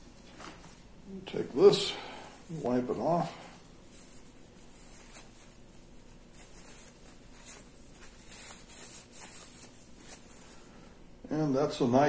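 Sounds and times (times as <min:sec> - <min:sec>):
paper towel rubbing metal: 0:02.8 - 0:10.6.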